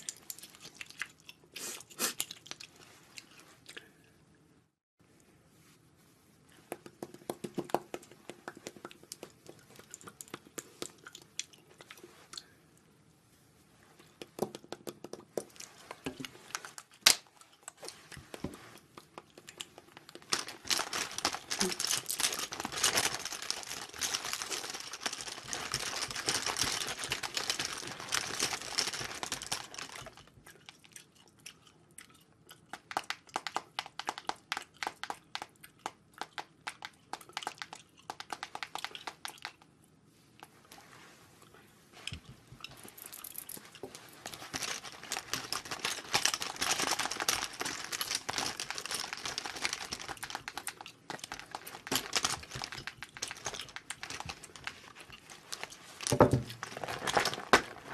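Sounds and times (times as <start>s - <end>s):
rustling and crinkling of pouch: 19.6s - 30.3s, 40.4s - 57.9s.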